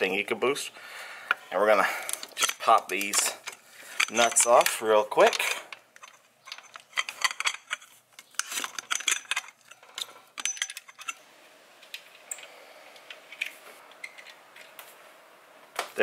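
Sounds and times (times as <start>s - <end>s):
metallic clicking of hand tools: 2.0s - 11.2s.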